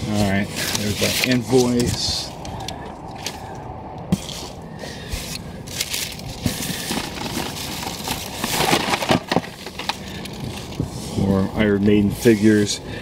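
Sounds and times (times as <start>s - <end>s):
paper and plastic crinkling: 0.0s - 3.5s, 5.2s - 11.3s.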